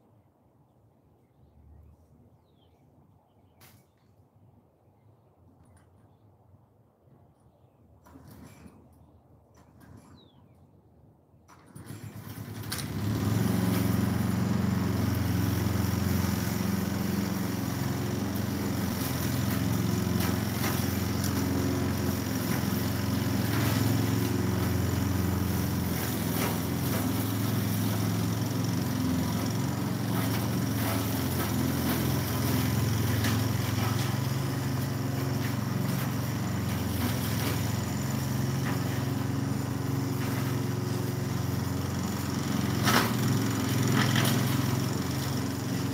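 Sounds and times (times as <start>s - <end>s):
small petrol engine starting and running: 11.5s - 45.9s.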